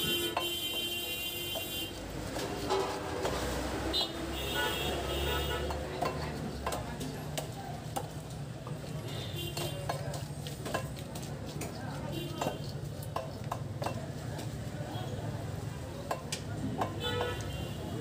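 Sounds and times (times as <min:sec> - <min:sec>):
wet knocks and scraping on blade: 0:01.6 - 0:08.9, 0:09.5 - 0:14.6.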